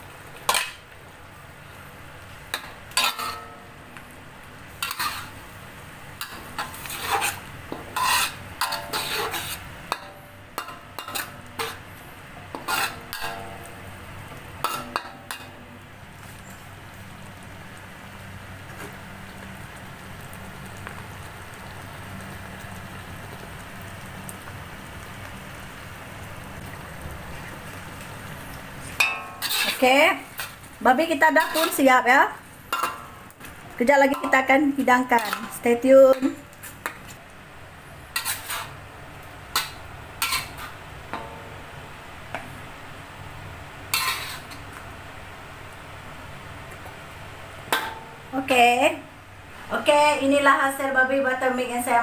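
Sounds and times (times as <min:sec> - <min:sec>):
metal spatula scraping a wok: 0:00.5 - 0:00.8, 0:02.5 - 0:03.6, 0:04.7 - 0:05.4, 0:06.2 - 0:11.9, 0:12.5 - 0:13.7, 0:14.6 - 0:15.6, 0:29.0 - 0:31.9, 0:34.0 - 0:37.0, 0:38.1 - 0:38.8, 0:39.5 - 0:40.8, 0:43.9 - 0:44.7.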